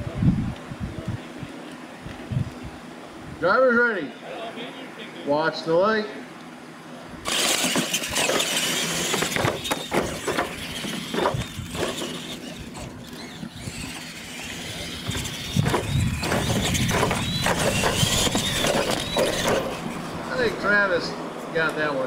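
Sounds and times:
tires scrabbling over loose dirt: 7.2s - 20.9s
electric motors whining: 7.2s - 21.3s
toy trucks knocking on landing: 7.3s - 12.9s, 15.0s - 19.8s.

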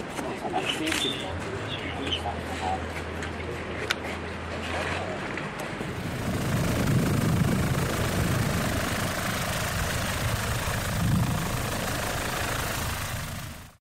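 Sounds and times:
engine and air hiss: 5.7s - 13.8s
helicopter rotor rumble: 5.7s - 13.8s.

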